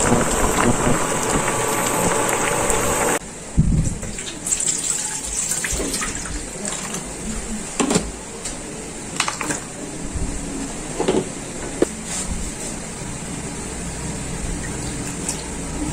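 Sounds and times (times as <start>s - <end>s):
water splashing in a metal pot: 4.1s - 7.0s.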